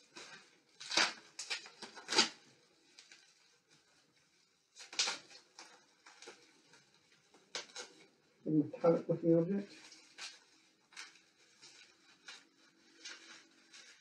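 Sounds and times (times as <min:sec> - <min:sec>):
plastic wrapping crinkling: 0:00.0 - 0:14.0.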